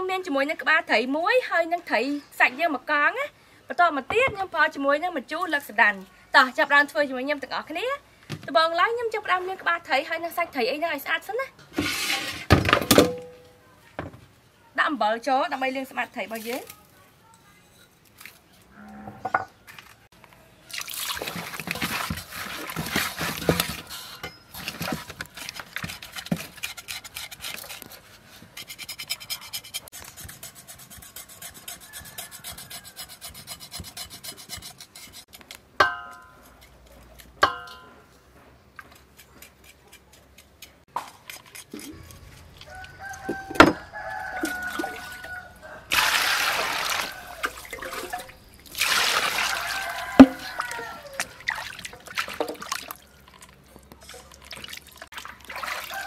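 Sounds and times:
salt scrubbing in steel bowl: 11.8s - 12.5s, 20.7s - 35.6s, 45.9s - 56.0s
water pouring into bowl: 20.7s - 22.8s, 45.9s - 56.0s
chickens calling: 42.0s - 51.5s.

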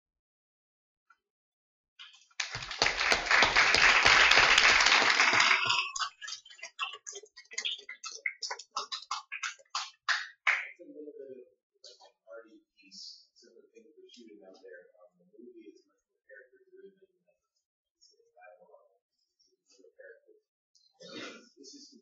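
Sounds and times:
audience applause: 2.4s - 10.6s.

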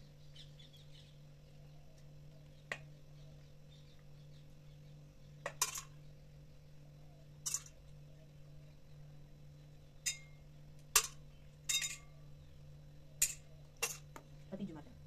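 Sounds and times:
steady low hum: 0.0s - 15.0s
small objects clinking on dishes: 5.4s - 5.9s, 7.4s - 7.8s, 11.0s - 12.1s, 13.2s - 14.1s.

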